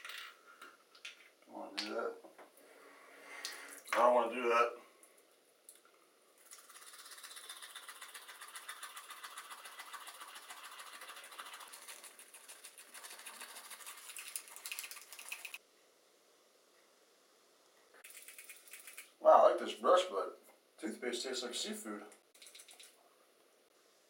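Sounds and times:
toothbrush scrubbing teeth: 6.4s - 15.6s, 18.0s - 19.2s.

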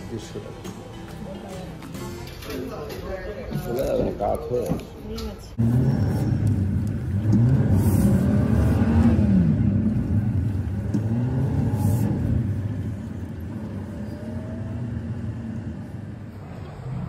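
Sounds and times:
vehicle engine revving: 5.6s - 17.0s.

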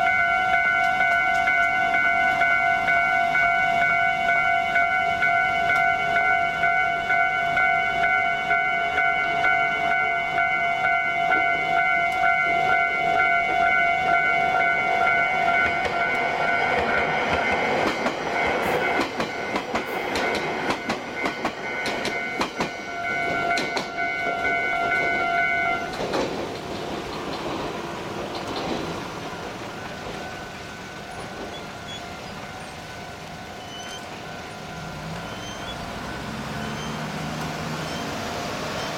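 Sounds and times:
road traffic: 0.0s - 38.9s
train wheels clicking over rail joints: 15.5s - 32.9s.

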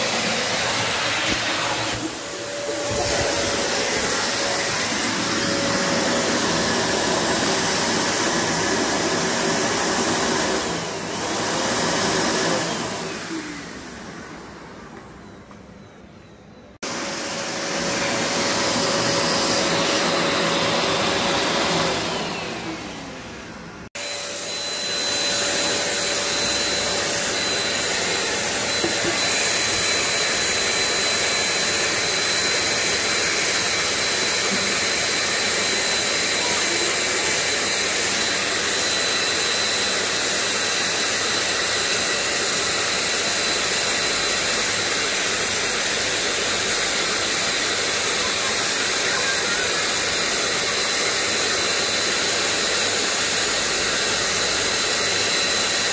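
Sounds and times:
vacuum nozzle on filter: 0.0s - 13.8s, 24.0s - 39.9s
handheld vacuum cleaner motor: 0.0s - 14.2s, 16.8s - 23.2s, 23.9s - 55.9s.

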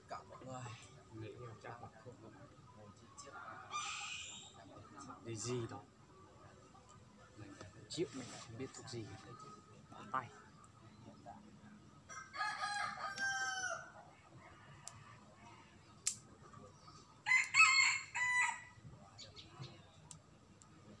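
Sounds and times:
rooster crowing: 12.1s - 14.0s, 17.2s - 18.8s.

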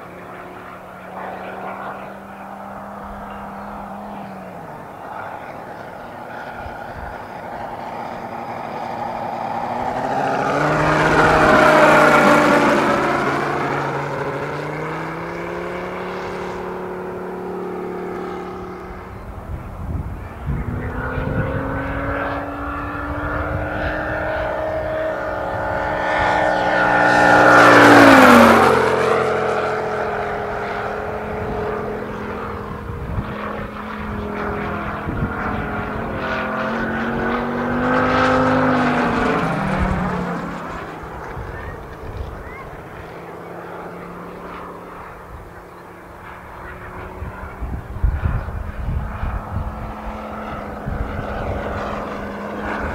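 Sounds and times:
model airplane radial engine: 0.0s - 52.9s.

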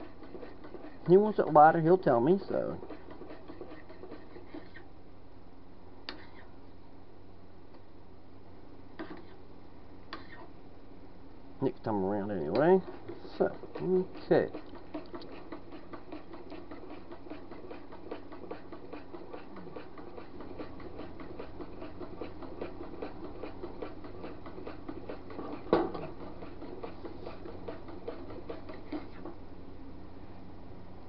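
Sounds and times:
utensil stirring in metal pot: 0.0s - 4.9s, 12.2s - 29.4s.

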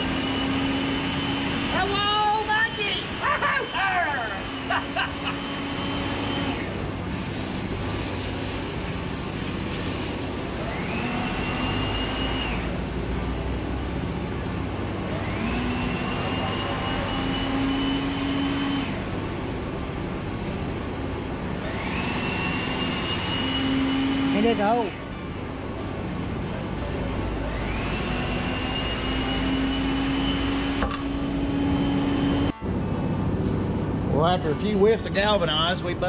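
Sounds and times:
cutting torch hissing: 0.0s - 12.7s, 15.2s - 19.0s
rising whine: 0.0s - 36.0s.

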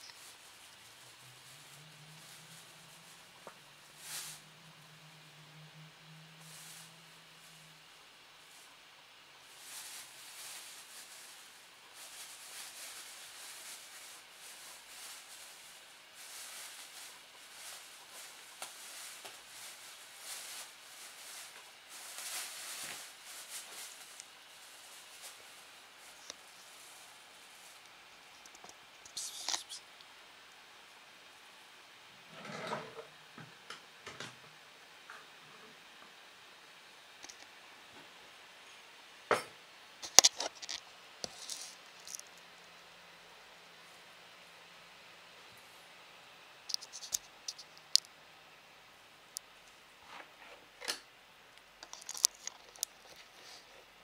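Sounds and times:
plastic bag rustling and crinkling: 0.0s - 4.9s, 6.3s - 7.8s, 9.4s - 29.9s, 40.0s - 42.8s, 46.6s - 48.1s, 51.8s - 53.9s.

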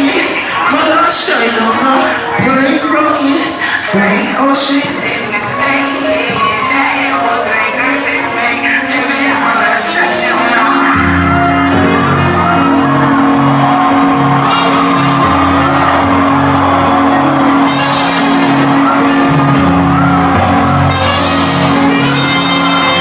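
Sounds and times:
live band playing loud music: 10.0s - 23.0s.

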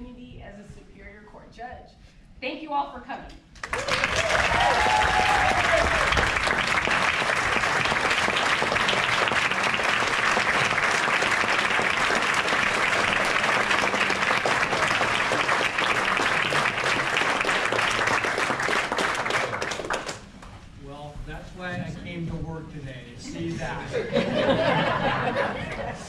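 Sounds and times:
audience applauding: 3.6s - 20.5s.

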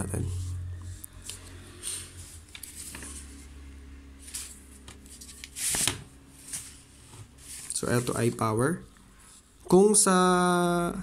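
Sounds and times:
low steady hum: 0.0s - 11.0s
paper rustling: 1.8s - 3.5s, 4.2s - 8.4s.

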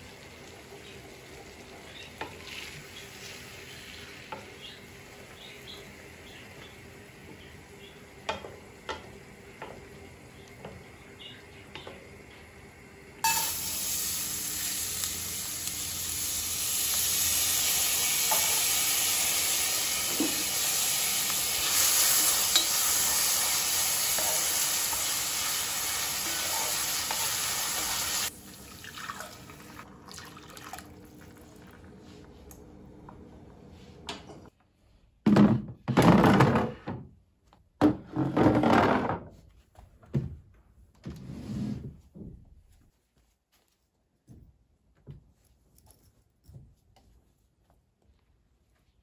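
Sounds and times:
loud steady hiss from pot: 13.2s - 28.4s.

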